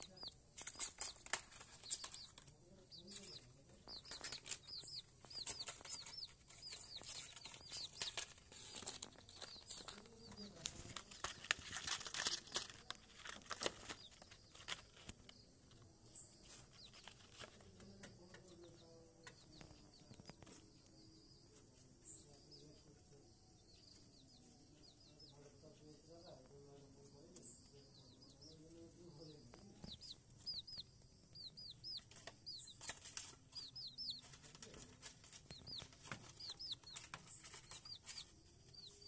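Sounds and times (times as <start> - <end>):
clicks and rustles: 0.0 - 18.6, 29.4 - 39.0
chicks peeping: 0.0 - 39.0.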